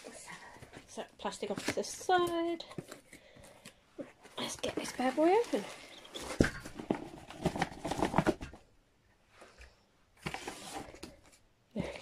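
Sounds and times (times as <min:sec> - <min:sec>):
cardboard packaging scraping and rustling: 0:04.6 - 0:08.6, 0:10.2 - 0:11.2.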